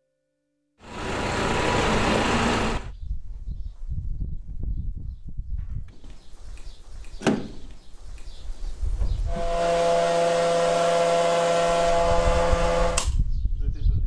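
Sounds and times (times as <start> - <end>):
fuel pump humming: 0.8 - 2.9.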